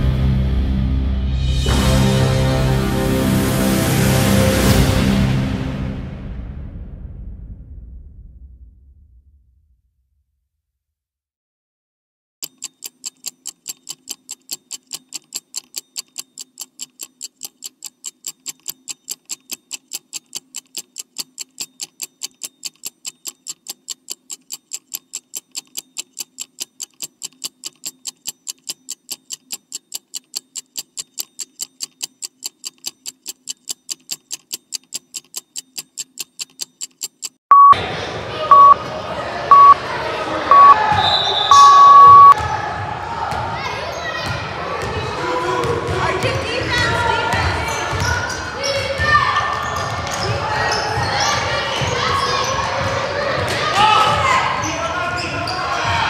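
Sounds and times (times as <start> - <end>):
fast timer ticking: 12.4 - 37.7, 38.5 - 38.8, 39.5 - 39.8, 40.5 - 40.8, 41.5 - 42.4
short beeps: 37.5 - 37.8, 38.5 - 38.8, 39.5 - 39.8, 40.5 - 42.4
gym sound: 41.5 - 42.4.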